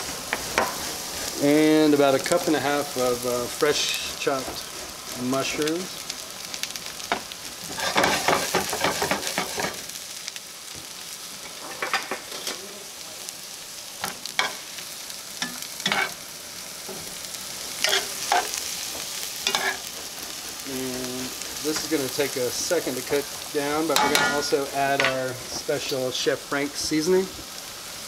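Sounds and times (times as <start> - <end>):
vegetables sizzling in oil: 0.0 - 28.0
metal spoon scraping skillet: 7.7 - 9.8, 15.4 - 16.2, 17.8 - 18.6, 19.4 - 19.9, 23.8 - 25.2.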